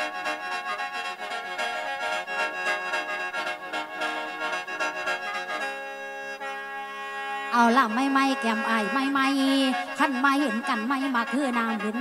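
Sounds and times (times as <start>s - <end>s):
free-reed mouth organ playing: 0.0s - 6.8s.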